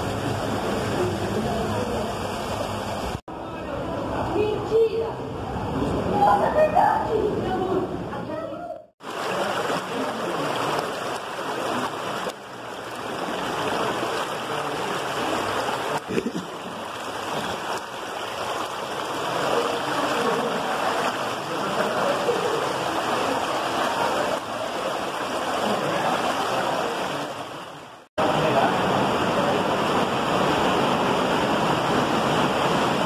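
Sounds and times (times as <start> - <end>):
stream rushing over rocks: 9.0 - 33.0.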